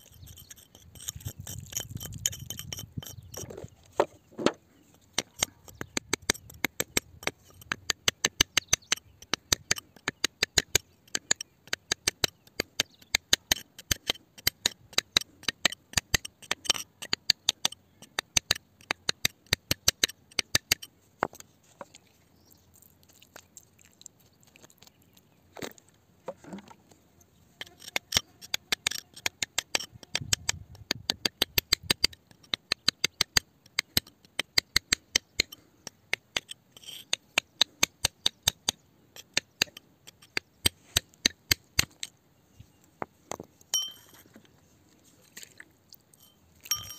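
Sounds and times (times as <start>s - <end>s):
metal pick tapping on rock: 0.0s - 21.4s, 43.3s - 44.3s, 46.2s - 46.9s.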